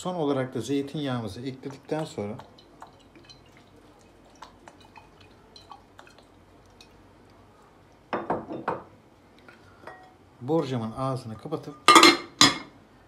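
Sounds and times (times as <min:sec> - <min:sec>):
oil dripping ticks: 0:01.5 - 0:08.0
glass bottle set down on counter: 0:08.1 - 0:08.9.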